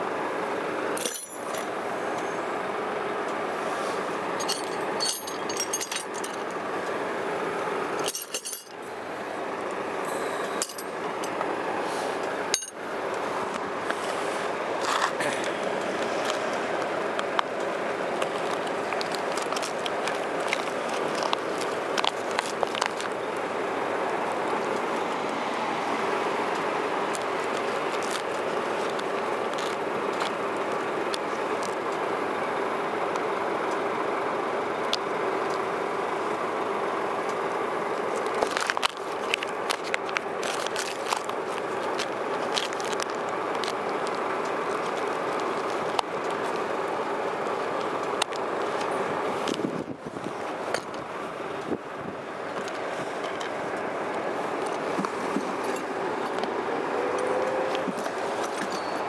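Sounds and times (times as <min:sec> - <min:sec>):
steady background noise: 0:00.0 - 0:59.0
metal hex keys clicking: 0:01.0 - 0:01.7, 0:04.4 - 0:06.5, 0:08.0 - 0:08.8, 0:12.6 - 0:12.8
plastic bag rustling: 0:38.2 - 0:46.7.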